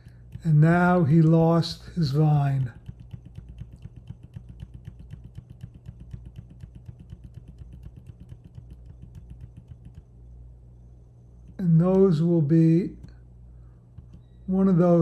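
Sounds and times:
low steady hum: 0.0 - 15.0
keyboard key tapping: 2.6 - 10.1, 14.0 - 14.3.

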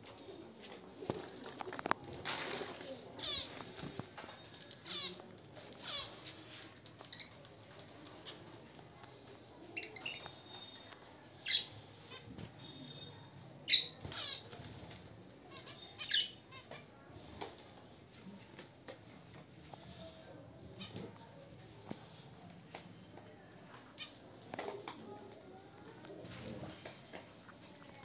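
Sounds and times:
birds chirping: 2.7 - 17.7.

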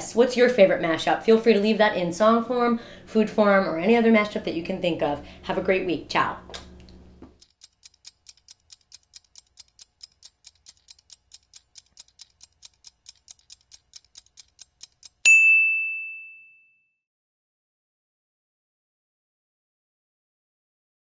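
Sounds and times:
faint timer ticking: 7.4 - 15.3
bell ding: 15.2 - 17.0.

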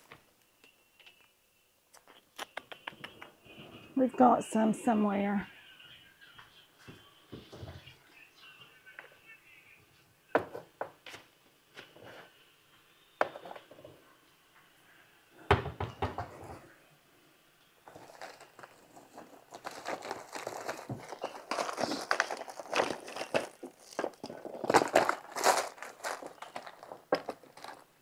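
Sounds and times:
rustling and crinkling: 17.8 - 28.0
knocks and clunks of rummaging: 17.9 - 27.9.

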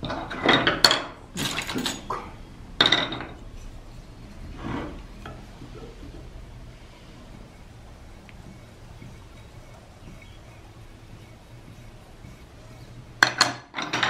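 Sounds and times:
tools clattering on workbench: 0.0 - 3.4, 13.2 - 14.0
scraping on workbench: 0.0 - 14.0.

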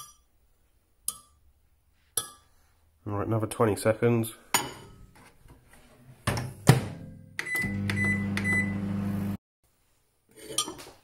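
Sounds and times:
microwave oven humming: 7.4 - 9.4.

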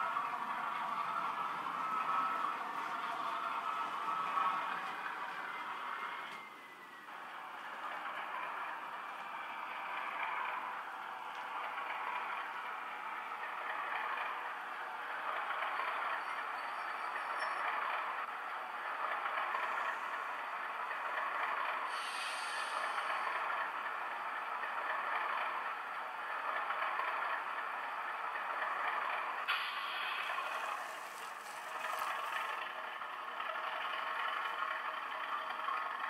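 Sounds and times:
diesel engine rattling from speakers: 7.2 - 36.0
bright hiss: 21.9 - 23.0.

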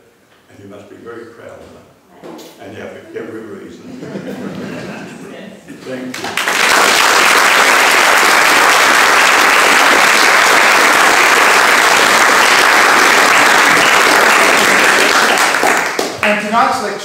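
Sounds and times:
audience applause: 6.2 - 16.3.

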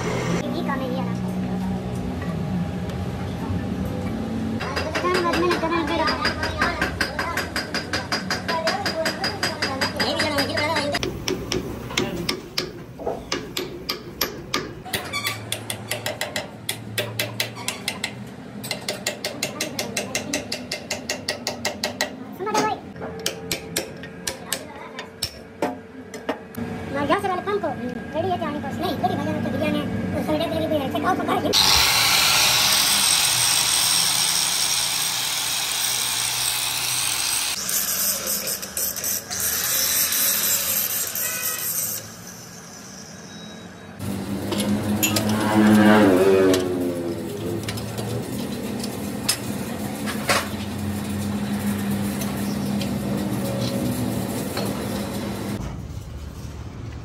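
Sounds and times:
angle grinder grinding metal: 31.5 - 43.0, 44.0 - 49.1.

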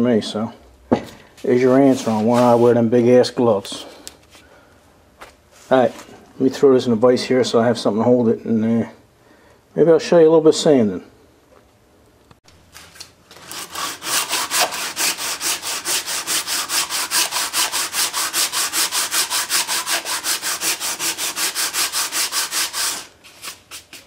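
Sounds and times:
sandpaper rasping on metal: 13.4 - 24.0.

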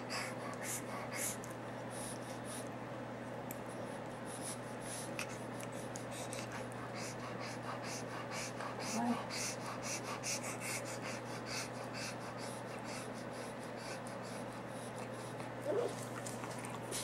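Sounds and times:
dog panting: 0.0 - 2.7, 3.7 - 17.0
low electrical hum: 0.0 - 17.0.

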